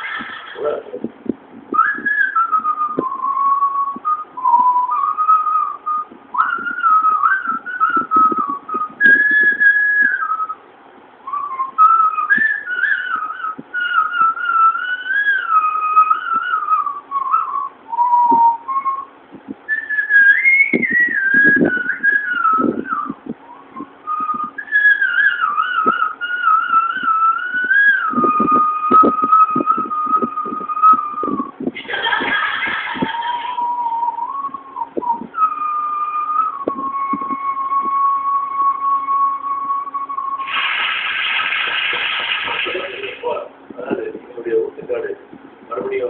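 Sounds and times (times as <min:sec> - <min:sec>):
person whistling a melody: 0:01.7 - 0:10.6, 0:11.2 - 0:19.1, 0:19.7 - 0:31.6, 0:33.0 - 0:40.6.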